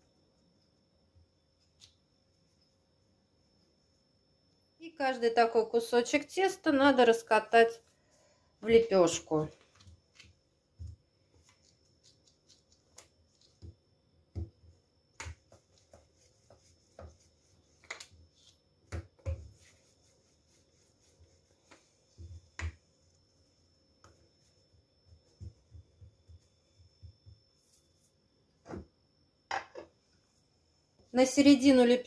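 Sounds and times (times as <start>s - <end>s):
rolling pin rolling dough: 8.9s - 28.8s.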